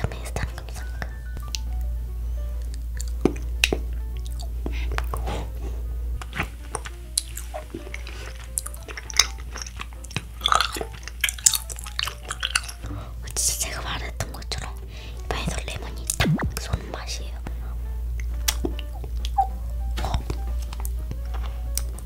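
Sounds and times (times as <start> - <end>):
chewing wax candy: 2.6 - 5.6, 6.2 - 16.9, 18.2 - 22.0.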